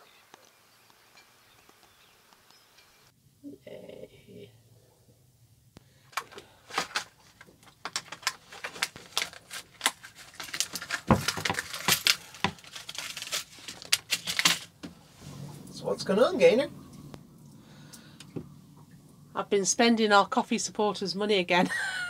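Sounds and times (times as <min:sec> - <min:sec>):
packaging crinkling: 0:06.2 - 0:14.8.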